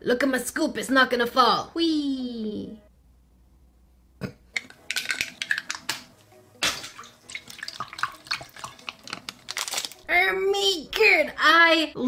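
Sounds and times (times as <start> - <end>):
water splashing in toilet bowl: 6.6 - 9.5.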